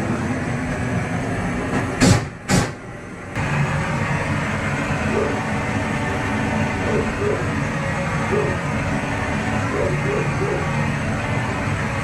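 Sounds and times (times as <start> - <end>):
propane torch burning: 3.2 - 12.0.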